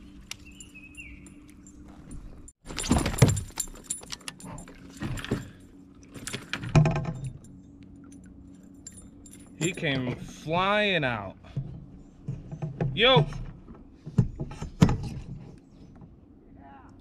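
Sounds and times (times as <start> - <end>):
fishing tackle clinking: 3.4 - 9.9.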